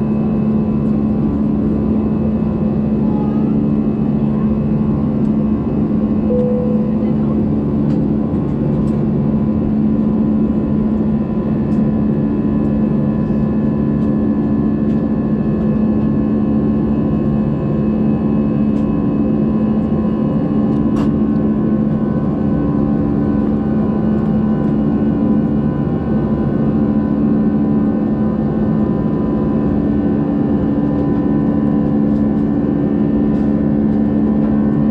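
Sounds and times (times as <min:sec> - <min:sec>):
jet engine and airflow drone: 0:00.0 - 0:34.9.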